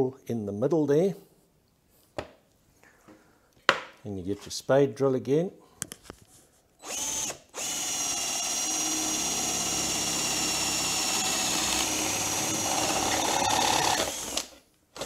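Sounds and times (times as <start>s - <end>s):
cordless drill boring wood: 6.8s - 15.0s.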